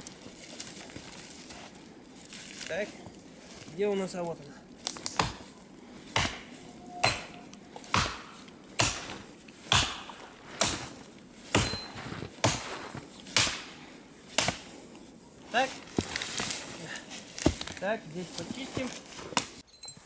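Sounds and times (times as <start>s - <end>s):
hatchet chopping branches: 4.1s - 19.6s.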